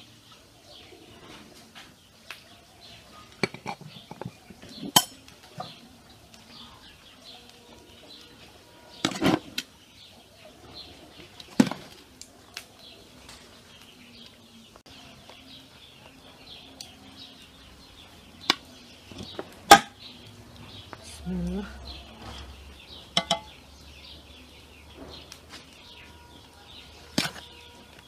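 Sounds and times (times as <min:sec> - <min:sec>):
birds chirping: 0:00.0 - 0:28.0
skimmer scraping metal pot: 0:08.9 - 0:09.7.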